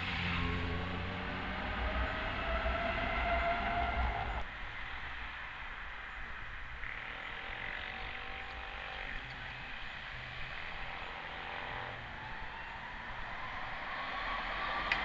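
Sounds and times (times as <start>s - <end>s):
van driving past: 0.0s - 4.4s.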